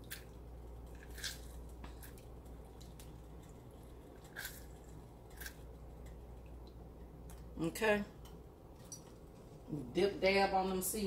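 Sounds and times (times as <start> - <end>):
juice dripping into pot: 0.0 - 7.6.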